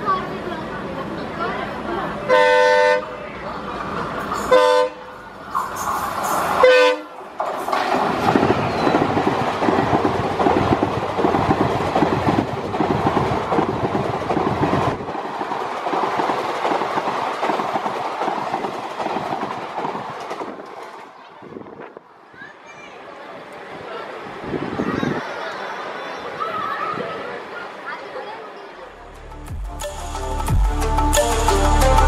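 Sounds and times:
train rushing past: 0:00.0 - 0:22.4
train horn blasts: 0:02.3 - 0:03.1, 0:04.5 - 0:05.2, 0:06.6 - 0:07.2
wheels clacking over rail joints: 0:05.5 - 0:21.4.

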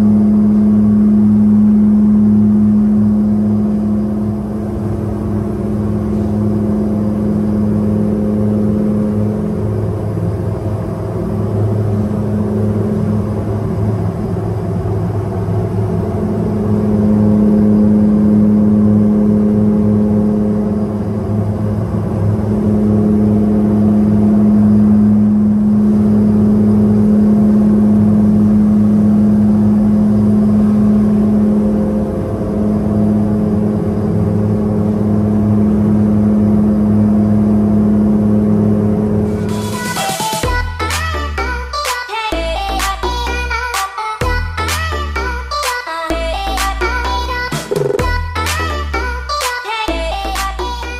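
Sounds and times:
low mechanical hum: 0:00.0 - 0:50.9.

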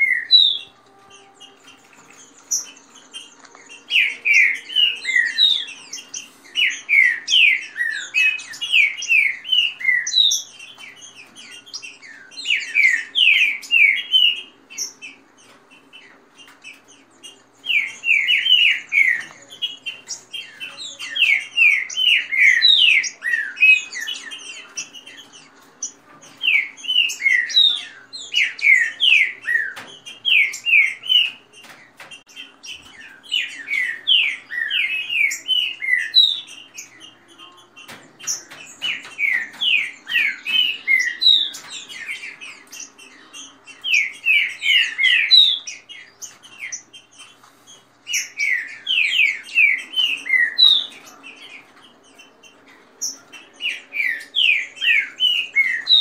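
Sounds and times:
birds singing whistled phrases: 0:00.0 - 0:56.0.

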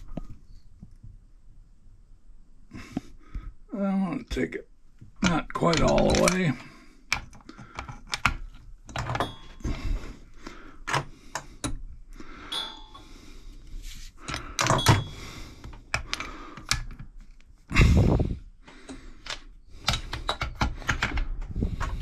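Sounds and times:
small metallic clicks and knocks: 0:05.2 - 0:09.6.

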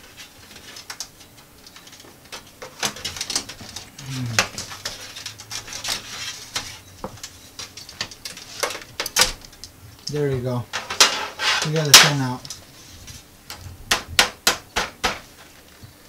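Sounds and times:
clicks and scrapes of computer fan: 0:00.0 - 0:14.4
short falling vocal sound: 0:04.0 - 0:04.6.

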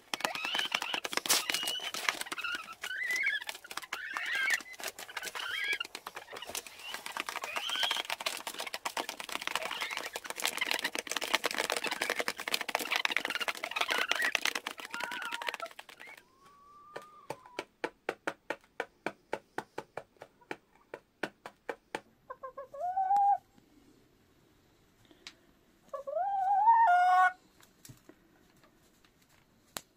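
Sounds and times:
hen pecking grain on tray: 0:00.0 - 0:16.2
chickens pecking: 0:00.0 - 0:23.3
hens clucking: 0:00.1 - 0:17.6, 0:22.2 - 0:23.4, 0:25.9 - 0:27.4
hen call: 0:13.0 - 0:17.6.

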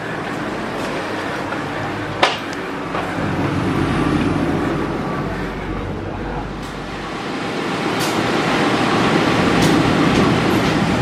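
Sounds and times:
train rumble: 0:00.0 - 0:11.0.

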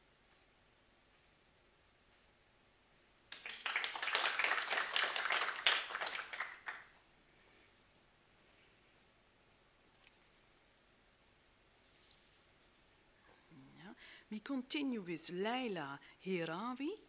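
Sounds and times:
small audience applause: 0:03.3 - 0:07.0.

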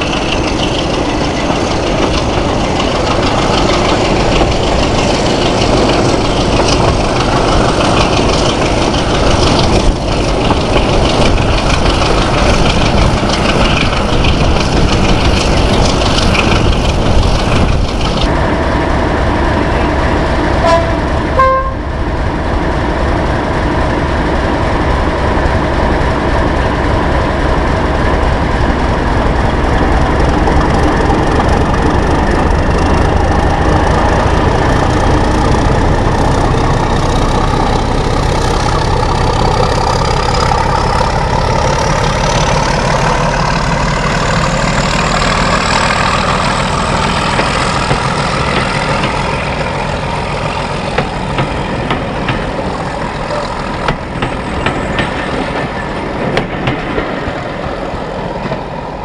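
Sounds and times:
diesel locomotive engine: 0:00.0 - 0:59.0
wheel and rail noise: 0:00.0 - 0:59.0
two-note train horn: 0:20.6 - 0:21.9.

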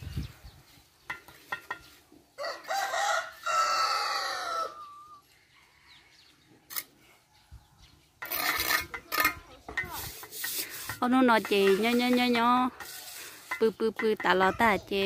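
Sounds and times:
rooster crowing: 0:02.4 - 0:06.2.

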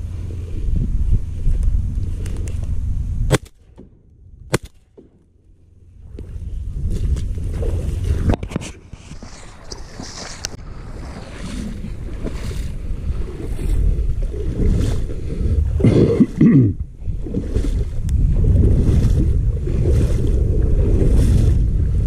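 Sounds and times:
wind buffeting microphone: 0:00.0 - 0:04.6, 0:05.8 - 0:22.0
water sloshing: 0:06.8 - 0:22.0.

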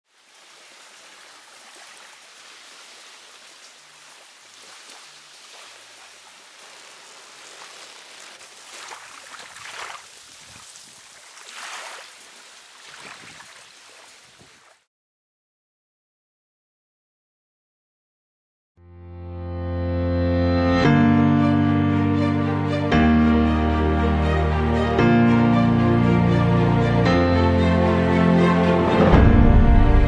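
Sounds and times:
small waves washing on shore: 0:00.0 - 0:14.8.

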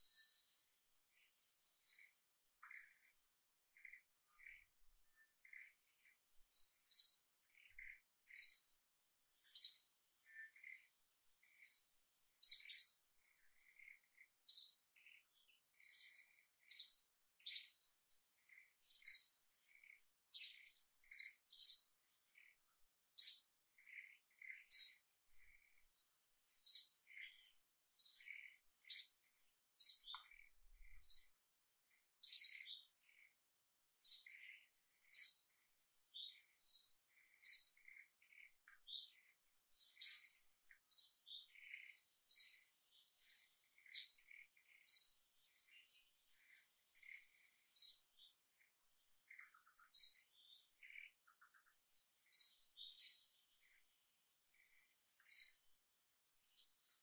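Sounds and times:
bird chirping: 0:00.0 - 0:57.0.

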